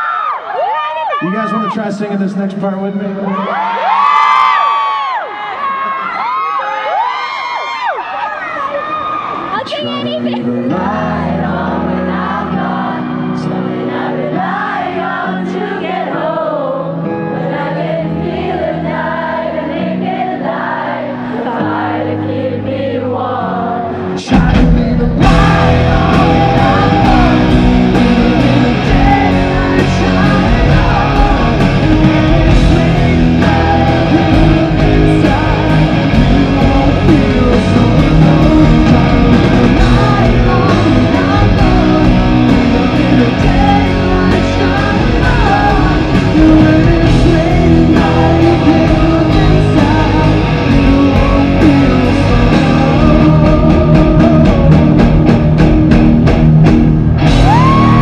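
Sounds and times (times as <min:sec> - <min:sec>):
live rock band: 0:03.3 - 0:58.0
man singing: 0:09.8 - 0:11.5, 0:24.0 - 0:55.9.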